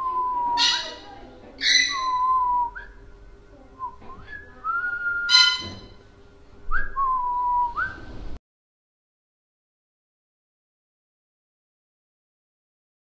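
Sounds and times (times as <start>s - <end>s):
parrot whistling: 0.4s - 2.6s, 4.8s - 5.9s
parrot squawk: 0.6s - 2.2s, 5.3s - 5.9s.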